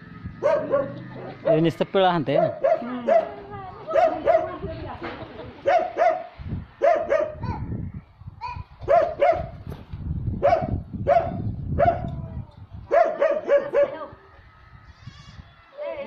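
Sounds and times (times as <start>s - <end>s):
dog barking: 0.4s - 1.6s, 2.3s - 4.6s, 5.6s - 7.6s, 8.5s - 9.6s, 10.4s - 12.1s, 12.9s - 14.1s.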